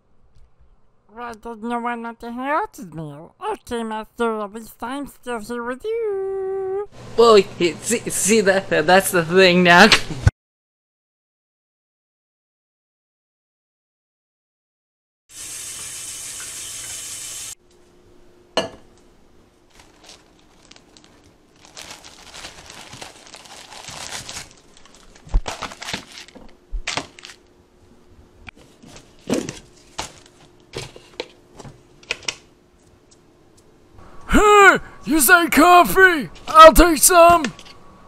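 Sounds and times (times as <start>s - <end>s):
hand rummaging in plastic canister: 19.7s - 27.4s, 28.6s - 32.3s.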